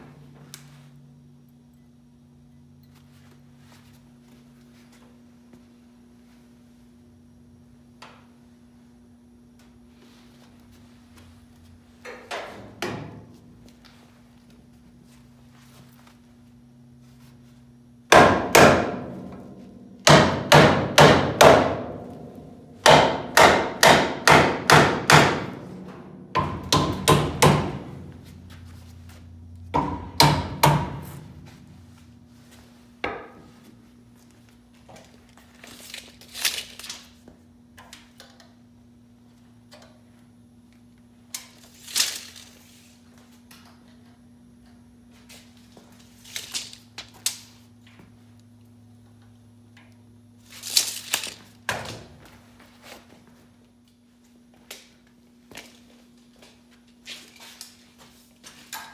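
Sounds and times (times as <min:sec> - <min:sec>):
hammer striking steel: 0:18.1 - 0:22.1, 0:22.8 - 0:27.8, 0:29.8 - 0:31.2.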